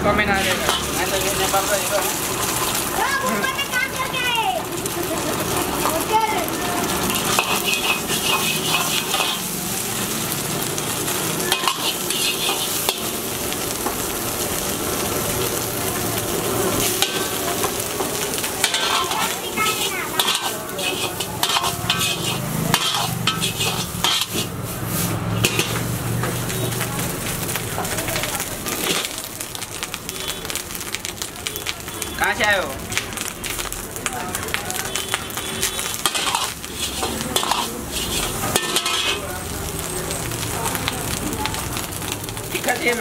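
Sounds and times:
oil sizzling in a wok: 0:00.0 - 0:43.0
metal ladle scraping a wok: 0:00.1 - 0:03.0, 0:06.8 - 0:14.0, 0:16.8 - 0:26.4, 0:35.3 - 0:39.3
ladle clinking on wok: 0:07.0 - 0:09.5, 0:11.5 - 0:13.1, 0:17.0 - 0:24.5, 0:25.4 - 0:25.8, 0:36.0 - 0:39.2.

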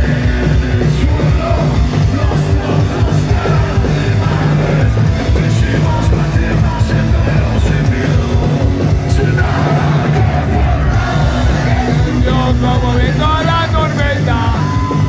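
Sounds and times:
bass: 0:00.0 - 0:15.0
distorted electric guitars: 0:00.0 - 0:15.0
drums: 0:00.0 - 0:15.0
singer shouting into microphone: 0:11.9 - 0:15.0.

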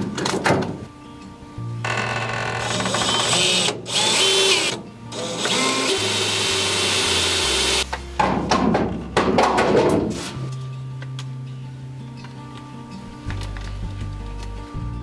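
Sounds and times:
drill boring through steel: 0:01.9 - 0:07.8.

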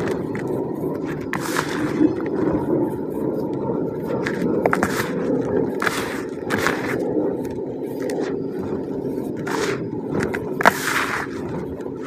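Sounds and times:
hands squeezing cement powder: 0:00.0 - 0:02.8, 0:04.1 - 0:07.1, 0:09.3 - 0:11.7.

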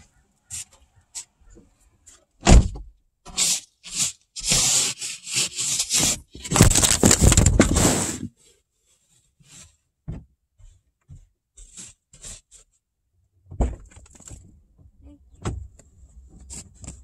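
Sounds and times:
ice scraper scraping windshield: 0:03.3 - 0:08.3.

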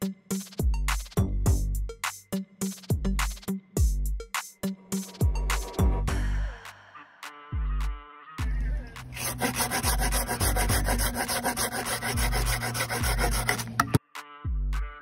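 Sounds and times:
electronic music with bass beat: 0:00.3 - 0:06.5, 0:07.5 - 0:11.1
hand saw cutting branch: 0:09.1 - 0:13.9.

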